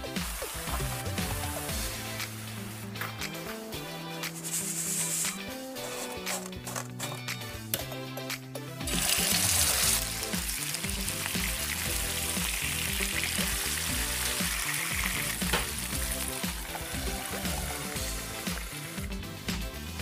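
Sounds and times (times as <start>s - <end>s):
meat sizzling in a frying pan: 8.9s - 19.2s.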